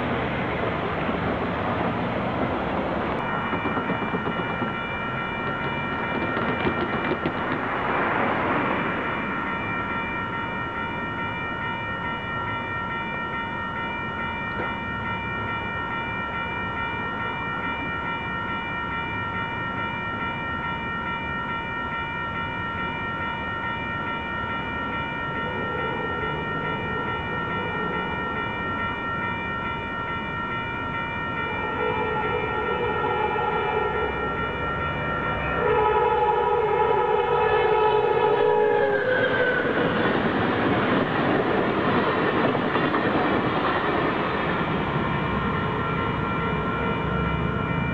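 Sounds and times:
railroad crossing bell ringing: 0.0s - 47.9s
train horn blasts: 31.6s - 34.4s, 35.5s - 39.9s.

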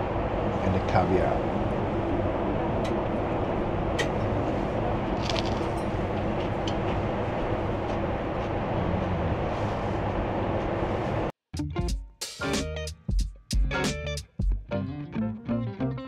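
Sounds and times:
aircraft cabin engine rush: 0.0s - 11.3s.

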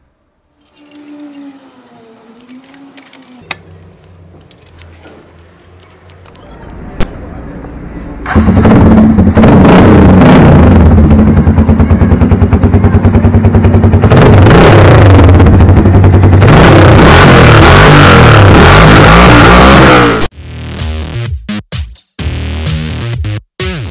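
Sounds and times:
motorcycle engine idling and revving: 7.7s - 20.4s.

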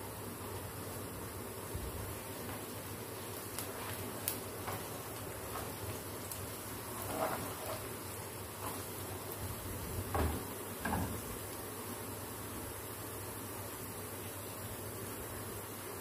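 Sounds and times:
onions sizzling in hot oil: 0.0s - 16.0s
spatula scraping and tapping pan: 4.6s - 6.0s, 6.9s - 8.0s, 8.6s - 8.9s.

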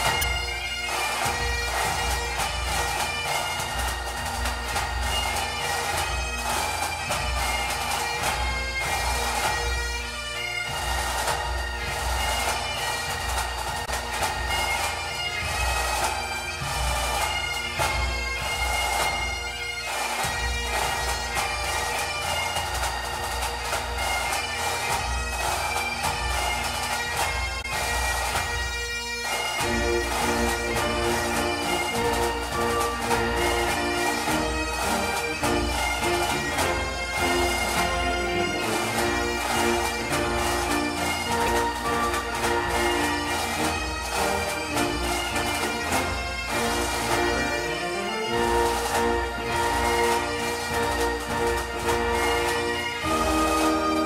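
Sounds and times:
bagpipe tune: 0.0s - 54.0s
drum beat: 29.6s - 54.0s.

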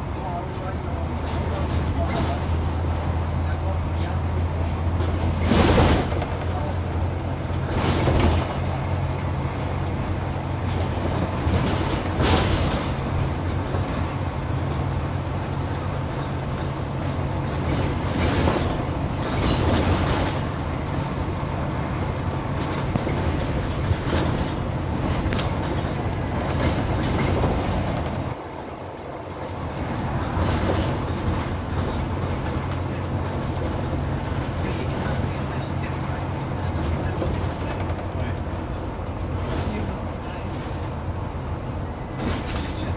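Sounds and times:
bus diesel engine drone: 0.0s - 42.9s
road noise: 0.0s - 42.9s
knocks from bus body: 4.9s - 6.6s, 7.4s - 8.8s, 10.0s - 14.0s, 17.5s - 21.1s, 42.2s - 42.9s.

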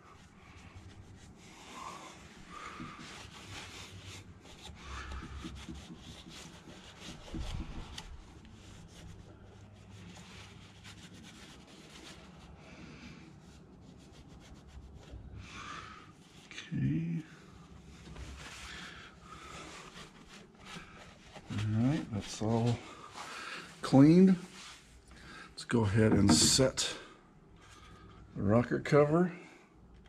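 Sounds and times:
towel scrubbing metal surface: 25.8s - 27.0s.

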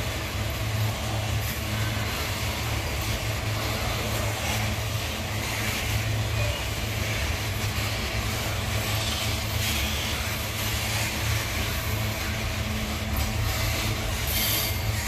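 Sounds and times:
diesel locomotive engine drone: 0.0s - 15.0s
train wheels rumbling on rails: 0.0s - 15.0s
rough rattling hiss: 7.0s - 15.0s.

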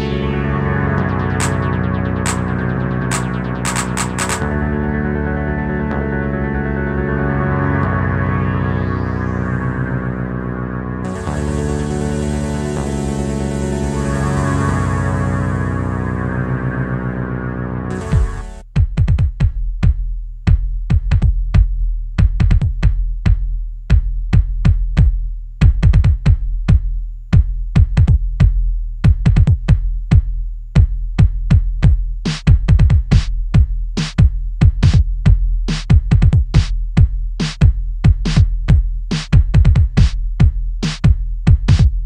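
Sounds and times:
deep bass: 0.0s - 42.0s
clicky percussion: 1.0s - 4.5s
hissing hi-hat hits: 1.1s - 4.4s
kick drum pattern: 18.0s - 42.0s.

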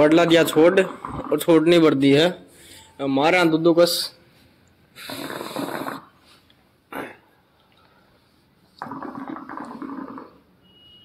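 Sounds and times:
hookah gurgling: 0.0s - 1.8s, 5.0s - 6.2s, 8.8s - 10.5s.

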